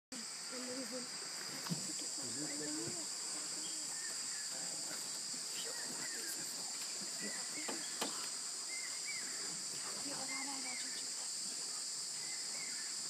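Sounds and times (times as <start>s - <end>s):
insects droning shrilly: 0.1s - 13.0s.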